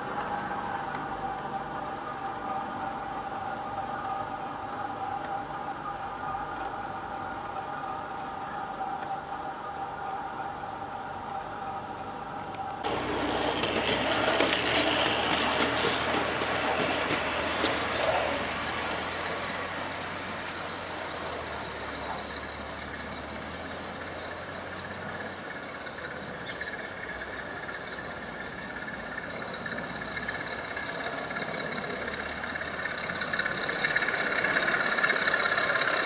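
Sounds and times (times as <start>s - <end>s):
model train rolling rumble: 0.0s - 36.0s
wheel clicks: 12.6s - 23.0s.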